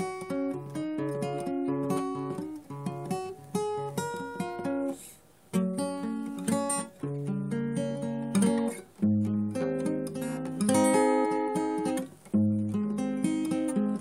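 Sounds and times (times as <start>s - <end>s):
acoustic guitar picking melody: 0.0s - 14.0s.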